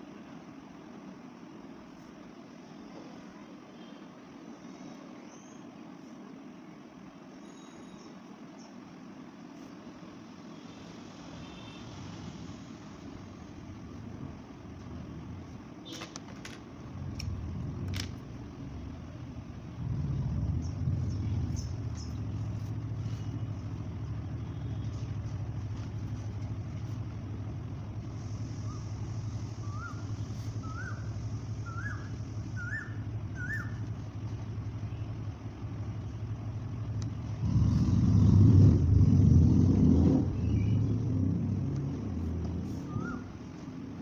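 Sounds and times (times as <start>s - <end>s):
low background rumble: 11.4s - 15.9s, 16.5s - 44.0s.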